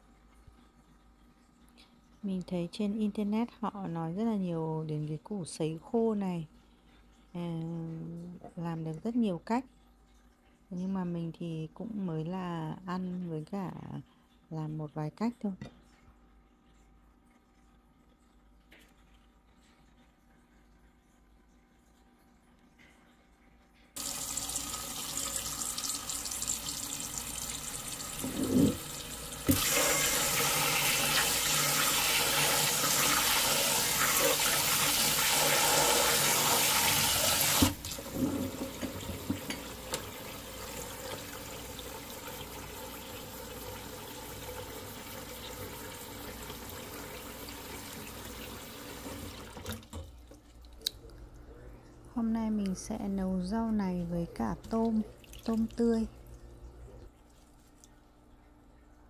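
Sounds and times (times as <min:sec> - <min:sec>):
tap water running into sink: 0:24.0 - 0:50.4.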